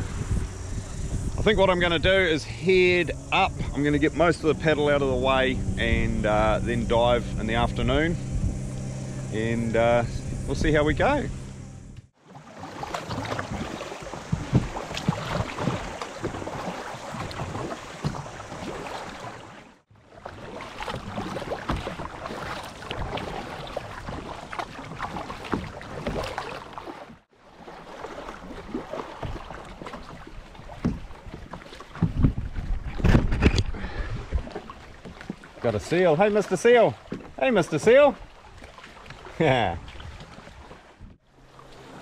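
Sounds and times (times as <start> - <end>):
kayak paddle splashing: 0.0 - 42.0.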